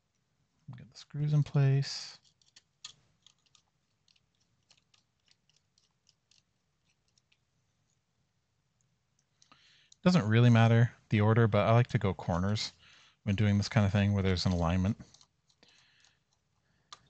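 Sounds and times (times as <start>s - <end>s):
small screws clicking: 2.2s - 7.4s.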